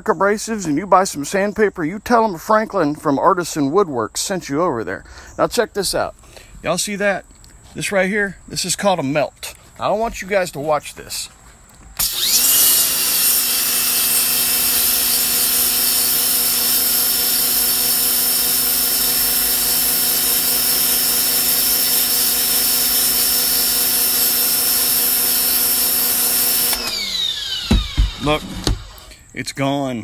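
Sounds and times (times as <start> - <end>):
pressure washer motor hum: 12.0 - 29.1.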